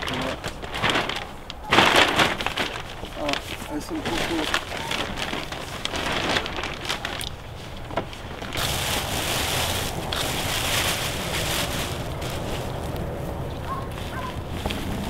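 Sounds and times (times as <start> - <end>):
wind on microphone: 4.6 - 15.0.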